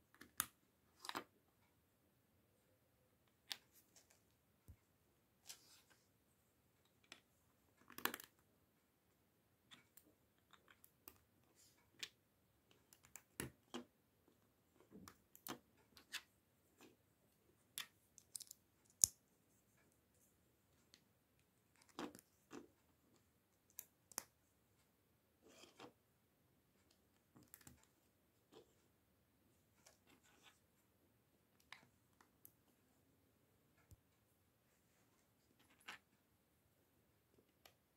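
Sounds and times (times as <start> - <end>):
plastic bricks clicking together: 17.8 - 19.2.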